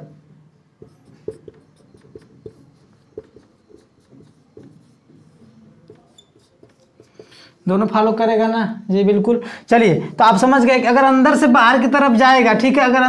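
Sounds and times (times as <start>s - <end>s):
marker writing on whiteboard: 0.6s - 8.2s.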